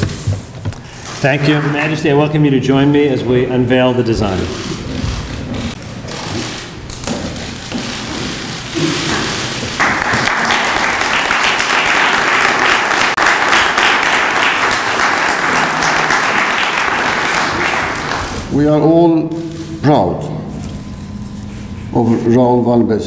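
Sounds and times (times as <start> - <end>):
large audience clapping: 1.4 - 2.0, 9.0 - 18.5
audience shuffling and murmuring: 4.2 - 18.6.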